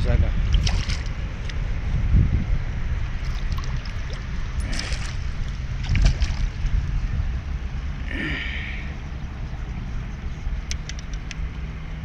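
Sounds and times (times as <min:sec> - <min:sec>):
steady low rumble: 0:00.0 - 0:12.0
fish thrashing in water: 0:00.5 - 0:01.6, 0:03.1 - 0:06.9
short splashes: 0:00.5 - 0:01.6, 0:03.2 - 0:06.8.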